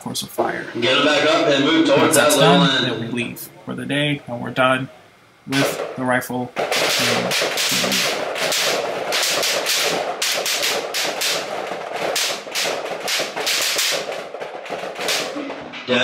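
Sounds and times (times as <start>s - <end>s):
rapid rifle fire: 5.5s - 15.7s.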